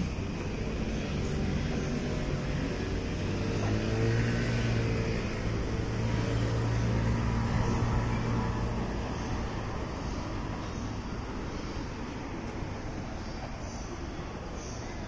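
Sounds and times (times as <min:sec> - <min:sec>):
vehicle engine running: 0:00.0 - 0:14.6
street ambience: 0:00.0 - 0:15.0.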